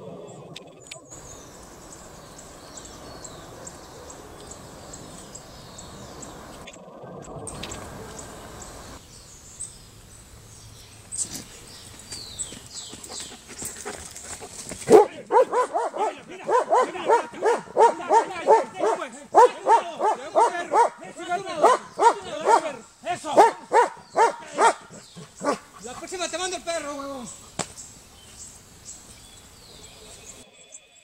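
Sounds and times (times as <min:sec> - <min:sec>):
birds chirping: 0:00.0 - 0:31.0
faint outdoor hush: 0:00.0 - 0:31.0
sharp taps and rustles: 0:11.0 - 0:15.1, 0:27.4 - 0:28.4.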